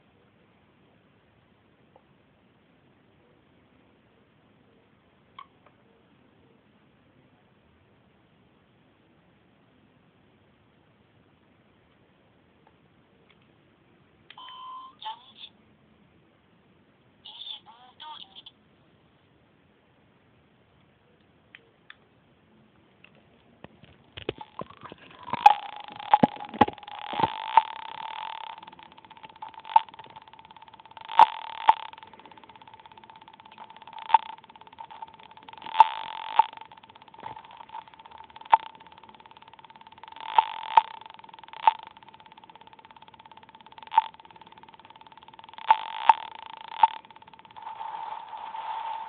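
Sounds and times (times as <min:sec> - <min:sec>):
faint clicks: 0:23.0 - 0:49.0
loud crackling clicks: 0:24.2 - 0:49.0
buzzy glitch noise: 0:24.3 - 0:49.0
electronic beep tone: 0:24.3 - 0:49.0.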